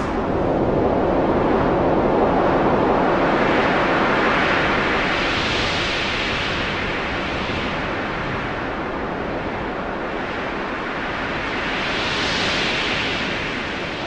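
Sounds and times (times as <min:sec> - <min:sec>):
loud even rushing noise: 0:00.0 - 0:02.1.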